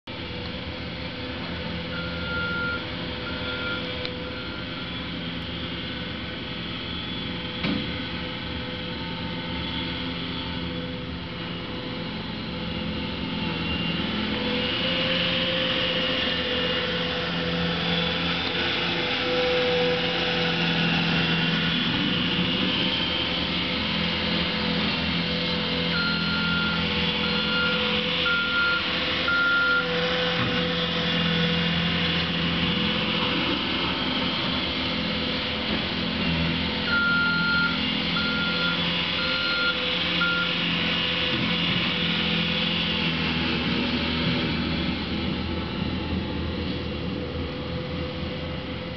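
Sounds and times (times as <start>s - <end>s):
loader engine running: 0.1s - 48.9s
backup alarm beeping: 1.9s - 4.7s, 36.9s - 40.5s.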